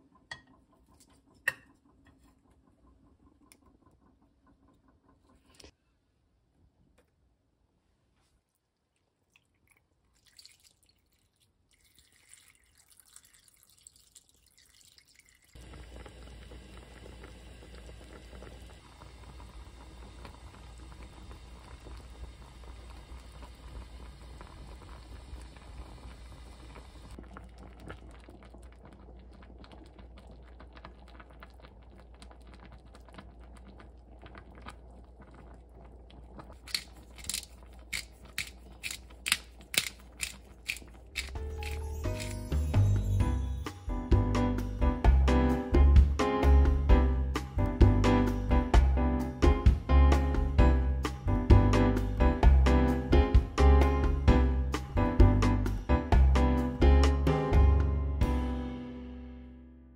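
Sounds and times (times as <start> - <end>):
pot simmering on gas stove: 0.0 - 6.6, 8.6 - 44.0
broth pouring into pot: 8.9 - 43.9
pepper grinder ratcheting: 36.6 - 42.4.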